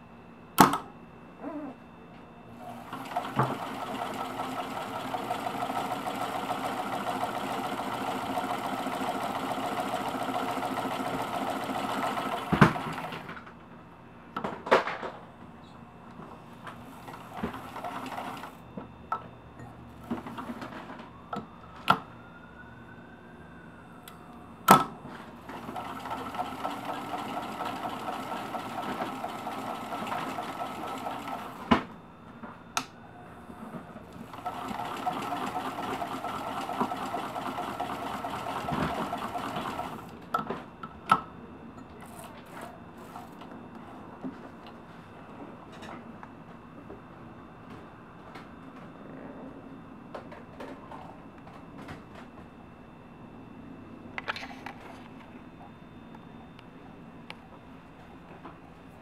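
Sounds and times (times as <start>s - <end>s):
sewing machine motor whine: 2.6s - 13.4s, 16.8s - 18.6s, 25.4s - 31.9s, 33.2s - 40.1s
sewing machine stitching chatter: 2.9s - 13.3s, 25.5s - 31.7s, 34.3s - 40.0s.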